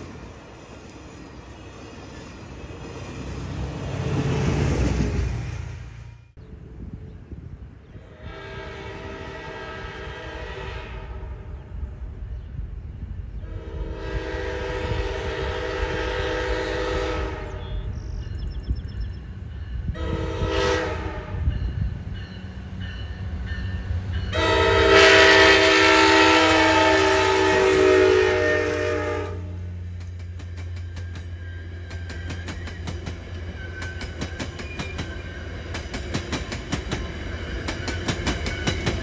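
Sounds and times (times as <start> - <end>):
train horn blasts: 8.0 - 11.8, 13.4 - 18.0, 19.8 - 21.9, 22.9 - 29.8
train wheels clicking over rail joints: 29.8 - 39.0.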